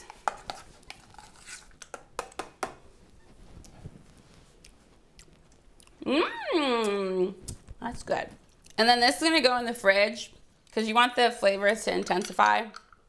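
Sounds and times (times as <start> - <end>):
metal spoon scraping steel bowl: 0.0 - 1.8.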